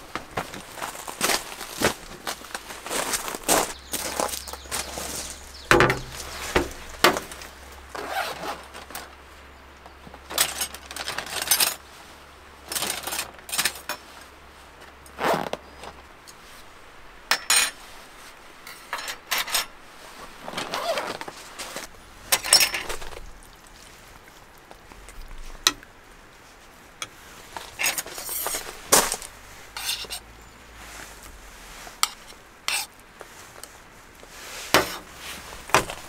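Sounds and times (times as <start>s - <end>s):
camp-kitchen gear knocking and scraping: 0.0s - 9.1s, 9.9s - 11.8s, 12.7s - 14.2s, 18.6s - 19.8s, 20.5s - 23.4s, 27.0s - 30.2s, 34.6s - 36.0s.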